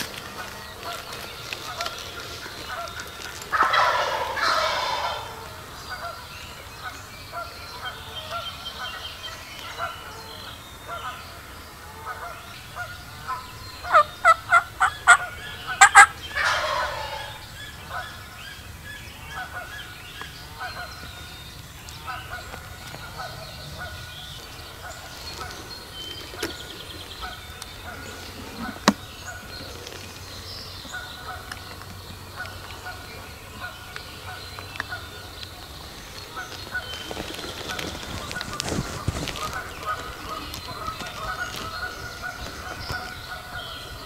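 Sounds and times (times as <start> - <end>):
faint bird calls: 0.0 - 44.0
turkey gobbling: 1.7 - 6.2, 12.1 - 18.2.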